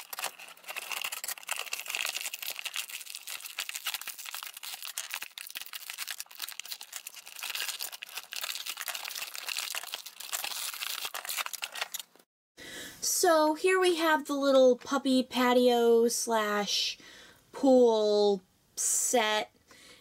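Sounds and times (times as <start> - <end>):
plastic packaging crinkling: 0.0 - 12.2.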